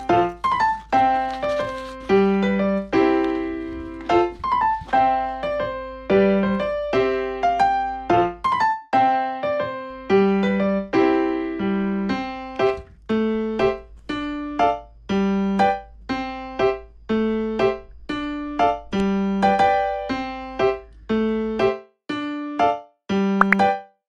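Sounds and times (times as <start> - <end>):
simple keyboard melody: 18.8 - 23.6.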